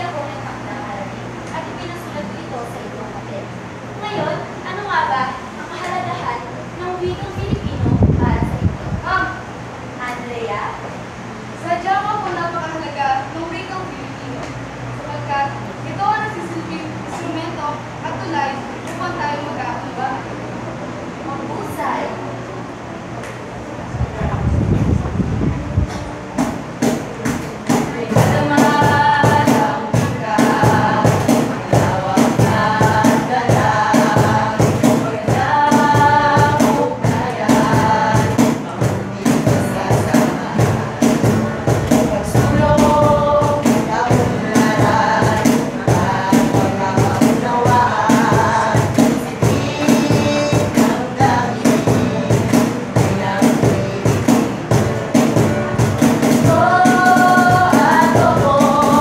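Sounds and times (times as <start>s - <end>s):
acoustic guitar: 22.3s - 59.0s
cajon beating: 24.1s - 59.0s
boy and girl singing: 25.4s - 59.0s.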